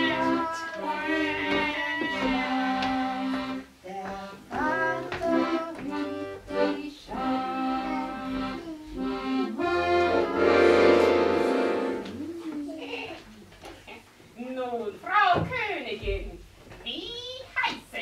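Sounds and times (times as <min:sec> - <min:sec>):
slow accordion melody: 0:00.0 - 0:12.4.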